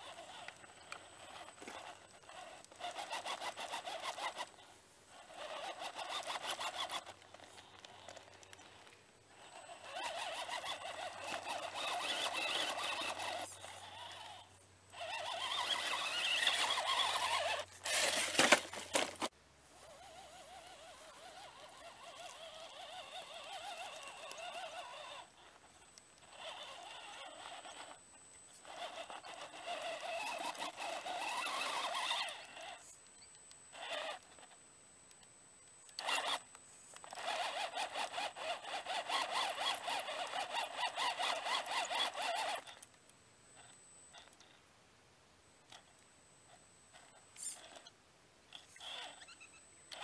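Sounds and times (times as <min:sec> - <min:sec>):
electric motor and gear whine: 0:00.0 - 0:44.7
tyres scrabbling over rock: 0:15.5 - 0:19.3.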